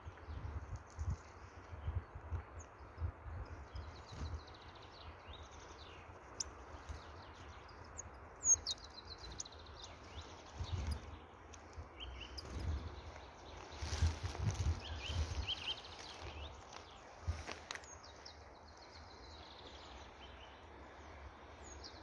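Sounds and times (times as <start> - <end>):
songbirds chirping: 0.0 - 22.0
rumble and thuds on microphone: 12.4 - 15.6.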